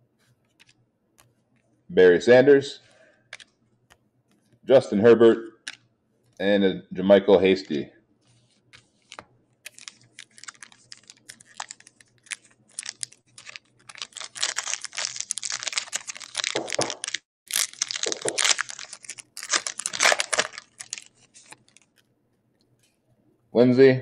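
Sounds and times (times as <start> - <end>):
foil wrapper tearing and crinkling: 9.0 - 22.0.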